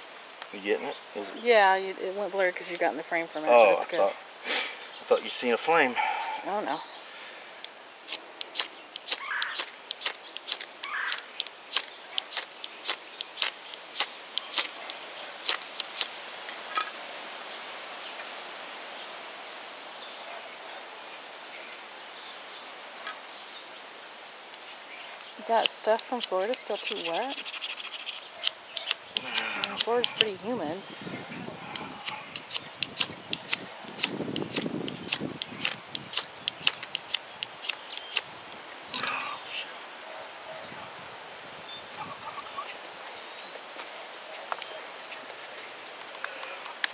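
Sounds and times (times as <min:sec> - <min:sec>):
ferro rod scraped by striker: 0:08.1 - 0:16.2, 0:25.4 - 0:30.4, 0:31.7 - 0:38.3.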